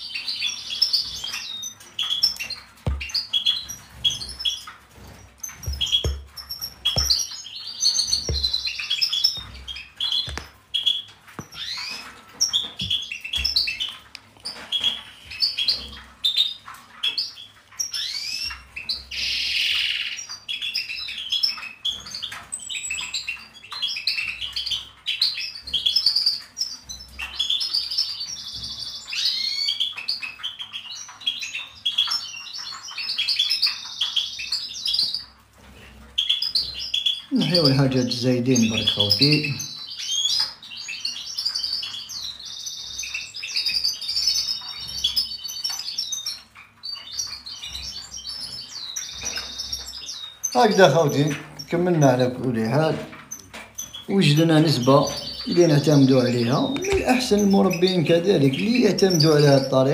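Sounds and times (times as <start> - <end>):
small birds chirping: 0.0 - 59.9
hand tools clicking and knocking: 2.2 - 7.3, 8.0 - 10.7, 11.4 - 11.8.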